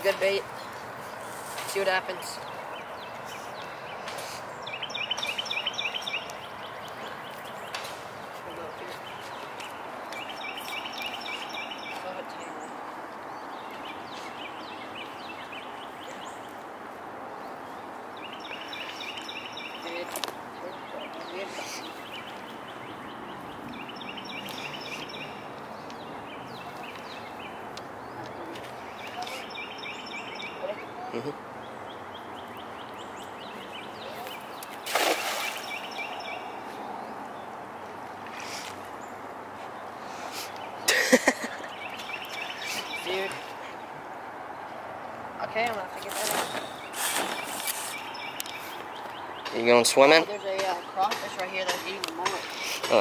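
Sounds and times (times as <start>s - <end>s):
birds chirping: 0.0s - 53.0s
outdoor background hiss: 0.0s - 53.0s
net splashing on water: 34.8s - 35.8s.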